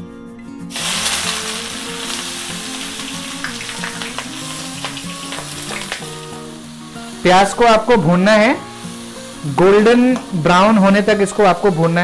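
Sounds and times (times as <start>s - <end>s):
onions sizzling in hot oil: 0.7s - 12.0s.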